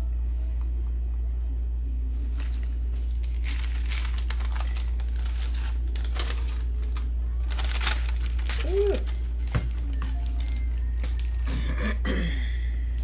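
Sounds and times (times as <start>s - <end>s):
steady low hum: 0.0s - 13.0s
crinkly rustling: 2.1s - 11.6s.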